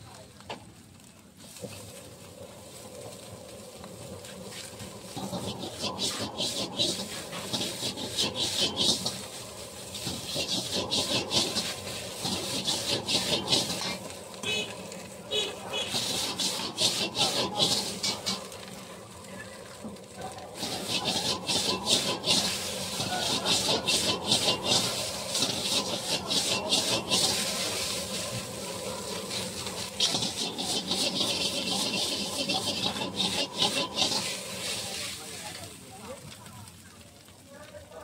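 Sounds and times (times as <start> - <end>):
metal ladle scraping wok: 4.3 - 18.7, 20.5 - 35.5.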